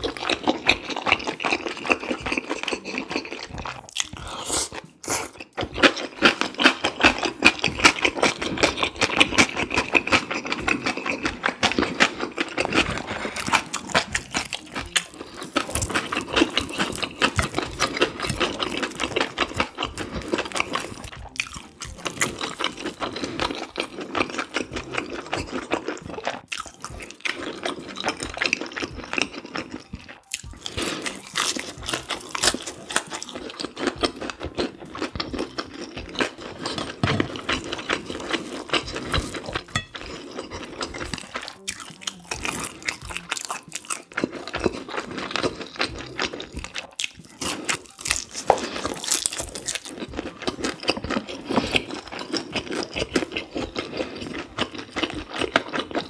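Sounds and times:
noodles slurping: 0.0 - 56.0
person chewing food: 0.0 - 56.0.

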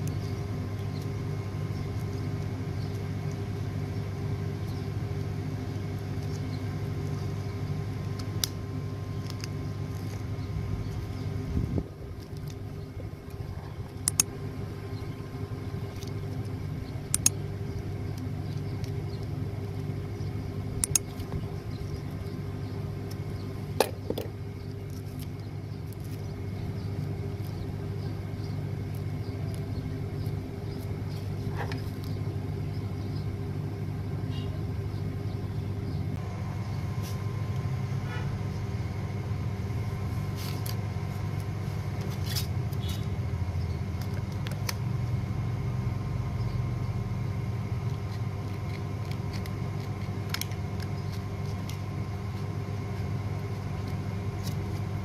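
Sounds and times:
low machine hum: 0.0 - 55.0.

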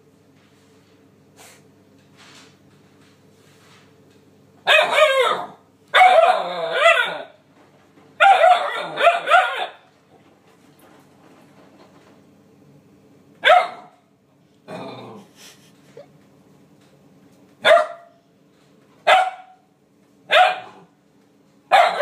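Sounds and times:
puppy barking and howling: 4.7 - 7.4, 8.2 - 9.8, 21.7 - 22.0.

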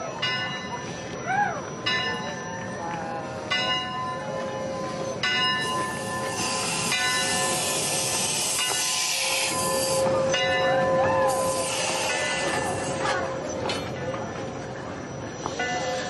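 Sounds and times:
locomotive bell ringing: 0.0 - 16.0
steam locomotive rolling: 0.0 - 16.0
steam hissing: 5.6 - 10.3, 11.2 - 13.3.

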